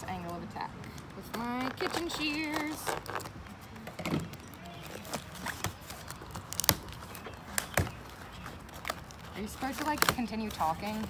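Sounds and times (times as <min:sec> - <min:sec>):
shears clicking on cardboard: 0:04.8 - 0:11.0.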